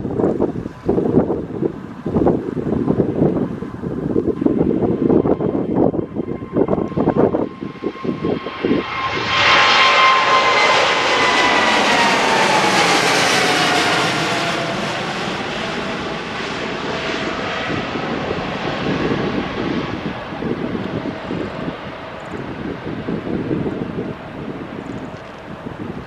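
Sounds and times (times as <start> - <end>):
jet taking off overhead: 0.0 - 26.0
wind gusts on microphone: 0.0 - 26.0.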